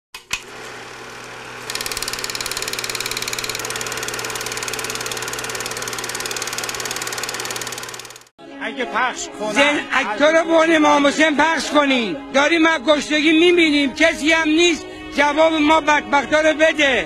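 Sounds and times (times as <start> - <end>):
machine low hum: 0.4 - 8.3
rapid pulsing rattle: 1.7 - 8.3.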